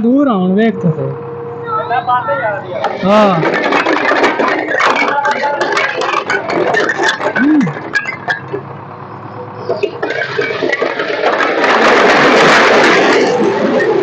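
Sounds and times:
bricks clattering: 0:02.8 - 0:08.8, 0:09.7 - 0:14.0
load of bricks sliding off: 0:02.8 - 0:14.0.

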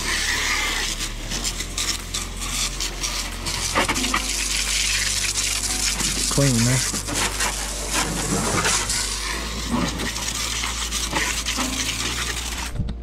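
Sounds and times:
hose nozzle spraying water: 0:00.0 - 0:13.0.

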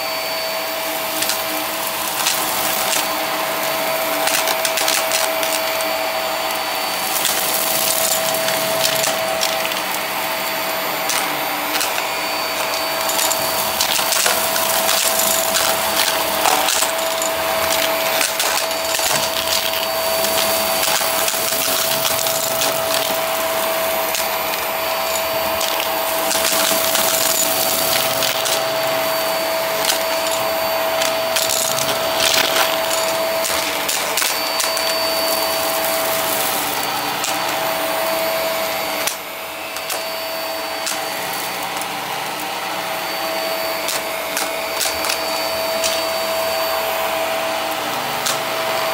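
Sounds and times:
vacuum cleaner whining: 0:00.0 - 0:48.9
debris crunching in vacuum: 0:01.1 - 0:37.6.

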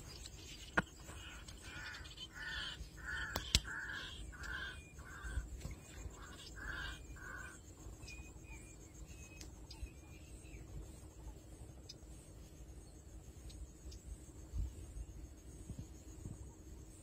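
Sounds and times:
crow cawing: 0:01.2 - 0:05.5, 0:06.2 - 0:07.6
sharp clicks: 0:03.2 - 0:03.8.

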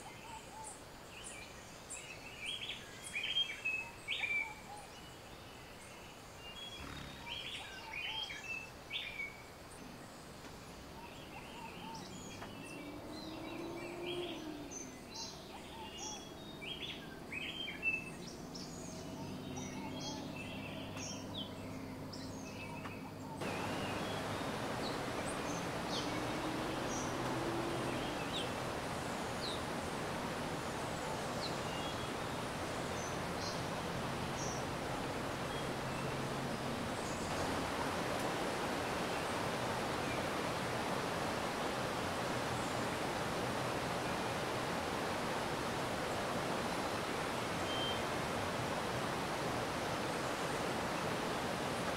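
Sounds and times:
small birds chirping: 0:00.0 - 0:51.9
mountain stream rushing: 0:06.3 - 0:22.6, 0:23.3 - 0:51.9.

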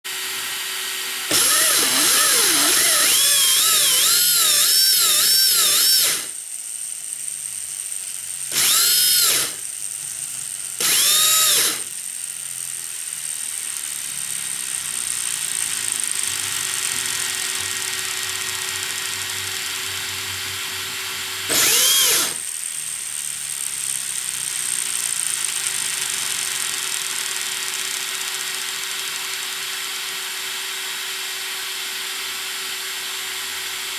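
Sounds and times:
electric motor whine: 0:00.1 - 0:06.4, 0:08.5 - 0:09.7, 0:10.8 - 0:12.0, 0:15.4 - 0:22.4
drivetrain whirring: 0:01.3 - 0:06.2.

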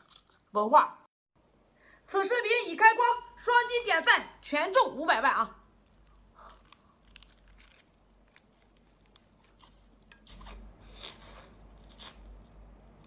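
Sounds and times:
person chewing food: 0:05.9 - 0:12.6
crunching bites: 0:06.0 - 0:12.6.

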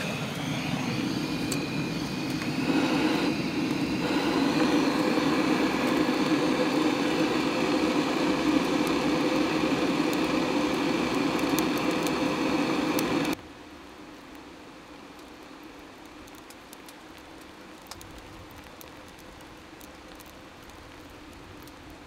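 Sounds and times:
gas torch burning: 0:00.0 - 0:13.4.

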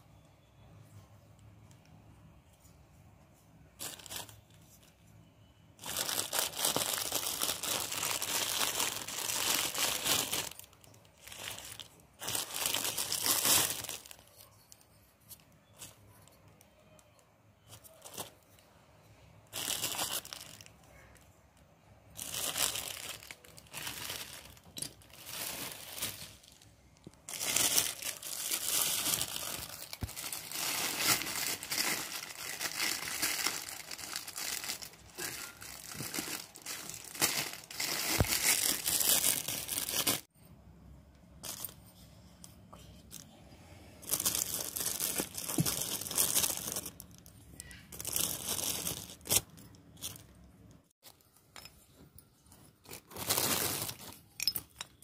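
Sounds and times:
paper crinkling and rustling: 0:05.8 - 0:17.1, 0:22.2 - 0:40.3, 0:44.0 - 0:50.3, 0:52.5 - 0:54.2.

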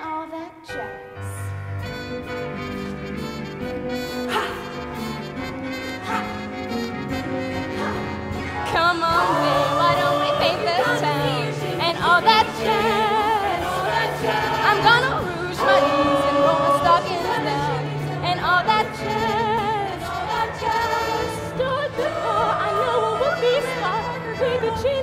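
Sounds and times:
band accompaniment: 0:01.5 - 0:25.0
chorus singing held notes: 0:07.7 - 0:24.6.

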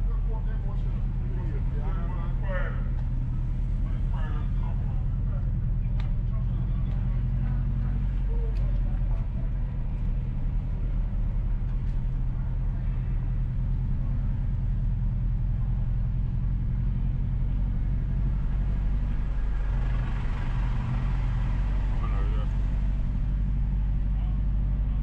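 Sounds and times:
car engine and tyres droning: 0:00.0 - 0:25.0.

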